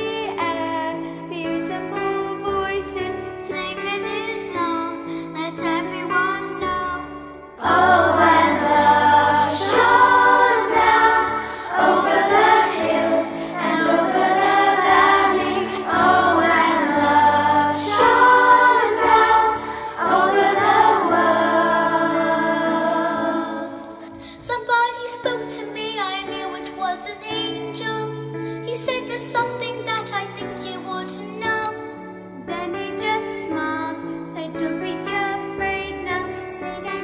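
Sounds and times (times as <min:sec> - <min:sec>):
girls choir singing: 0:07.6 - 0:24.2.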